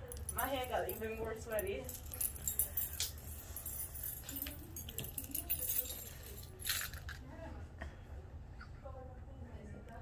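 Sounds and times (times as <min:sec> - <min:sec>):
metallic jingling and rustling: 0:00.0 - 0:07.2.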